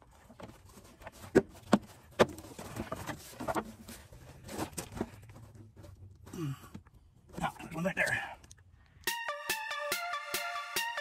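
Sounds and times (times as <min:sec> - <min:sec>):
plastic scraping and rustling: 0:00.0 - 0:06.3.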